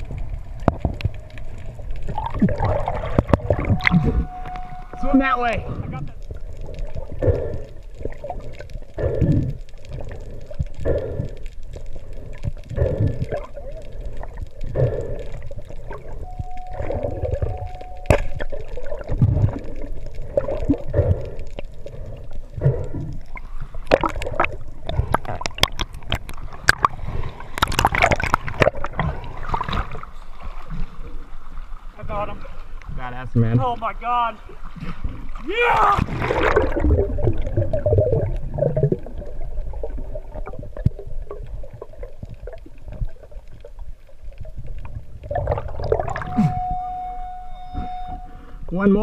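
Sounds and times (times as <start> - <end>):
muffled underwater water sounds: 0.0 - 49.0
loud splashing and sloshing: 34.8 - 38.9.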